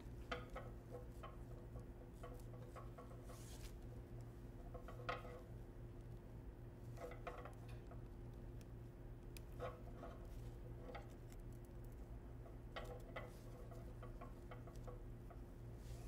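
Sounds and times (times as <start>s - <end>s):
light taps and scrapes: 0.0s - 16.0s
steady low hum: 0.0s - 16.0s
ribbon rustling: 2.3s - 4.3s.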